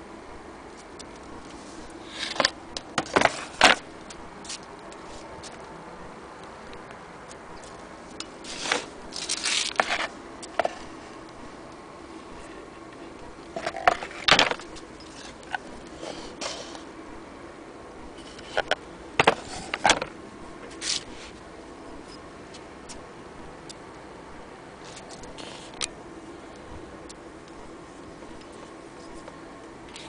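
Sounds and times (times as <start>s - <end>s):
faint steady hum: 0.0s - 30.0s
handling clicks and scrapes: 0.8s - 5.8s, 6.7s - 16.9s, 18.1s - 23.0s, 24.8s - 26.0s, 27.5s - 30.0s.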